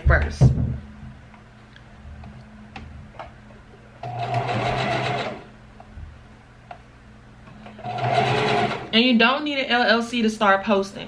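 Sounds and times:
electric sewing machine stitching: 0:04.0 - 0:05.5, 0:07.8 - 0:08.9.

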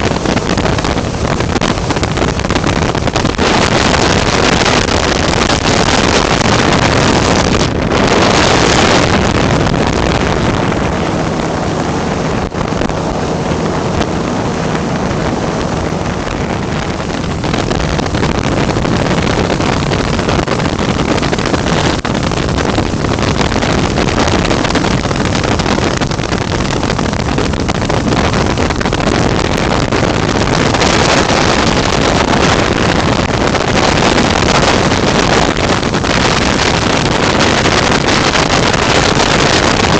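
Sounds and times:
aircraft engine drone: 0:00.0 - 0:28.3
wind rush on microphone: 0:00.0 - 0:39.9.

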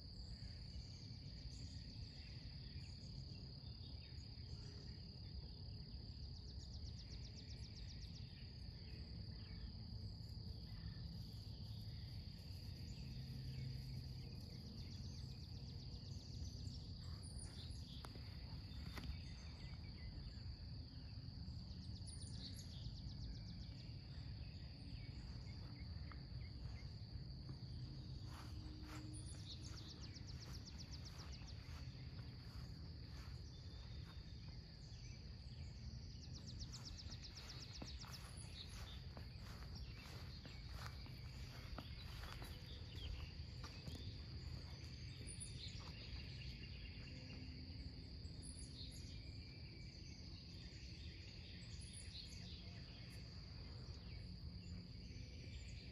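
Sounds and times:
outdoor background noise: 0:00.0 - 0:55.9
insects trilling: 0:06.2 - 0:55.9.

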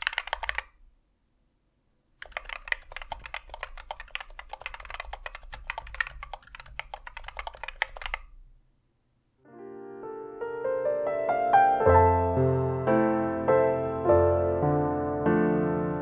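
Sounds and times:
fast typing on mechanical keyboard: 0:00.0 - 0:00.8, 0:02.2 - 0:08.3
soft piano music: 0:09.4 - 0:16.0.

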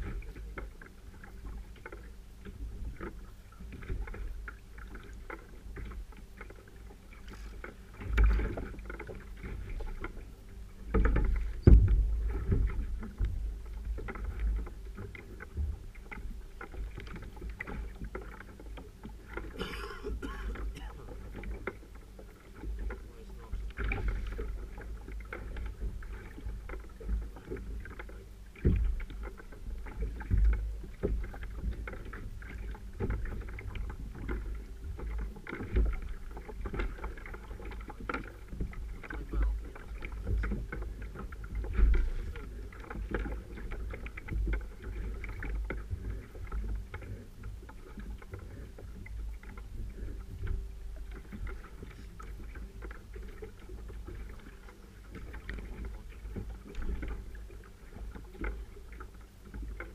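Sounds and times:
water slapping against hull: 0:00.0 - 0:59.9.

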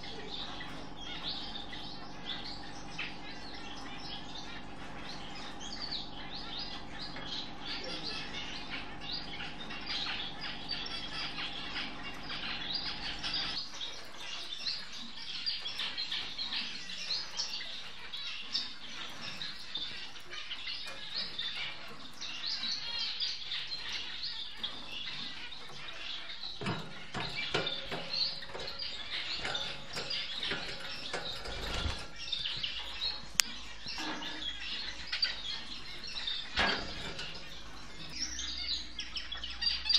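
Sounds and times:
finches chirping: 0:00.0 - 0:39.9
steady low hum: 0:00.0 - 0:39.9.

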